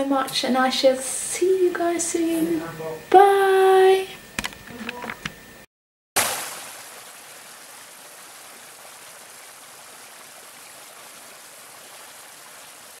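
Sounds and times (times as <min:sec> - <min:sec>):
stream splashing over rocks: 0:06.2 - 0:13.0.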